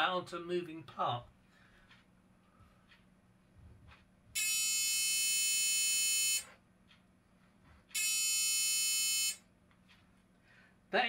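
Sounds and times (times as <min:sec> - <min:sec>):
electric buzzer buzzing: 0:04.4 - 0:06.5, 0:07.9 - 0:09.4.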